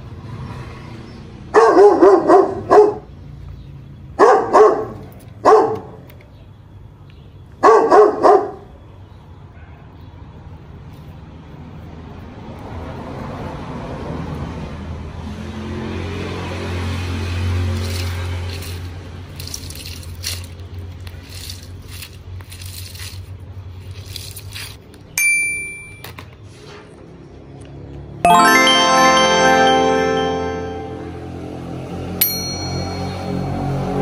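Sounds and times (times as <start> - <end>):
bell-like ding: 25.2 - 26.1, 28.3 - 31.4, 32.2 - 33.8.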